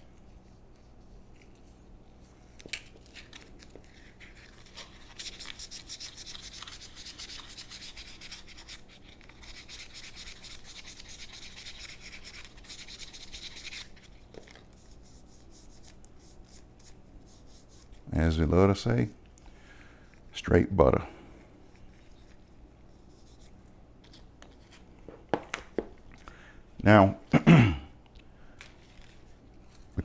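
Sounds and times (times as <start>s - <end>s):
sandpaper sanding wood: 4.6s - 13.9s.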